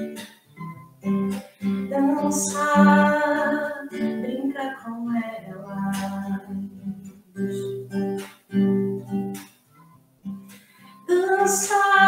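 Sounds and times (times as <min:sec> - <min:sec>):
acoustic guitar strumming chords: 0:00.0 - 0:12.0
woman singing: 0:01.9 - 0:06.9, 0:11.0 - 0:12.0.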